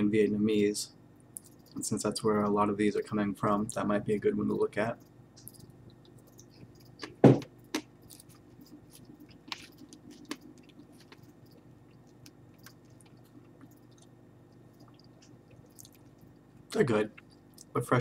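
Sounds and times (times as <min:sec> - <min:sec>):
crunching and chewing: 0:05.0 - 0:17.8.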